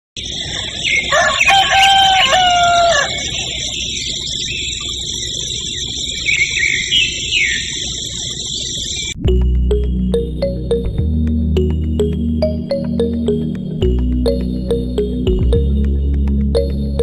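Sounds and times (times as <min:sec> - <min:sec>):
rooster crowing: 0:00.4 - 0:03.8.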